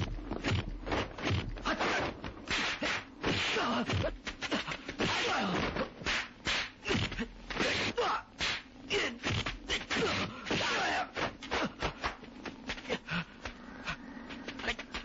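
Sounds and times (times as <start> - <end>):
sharp whacks: 0.4 - 12.2.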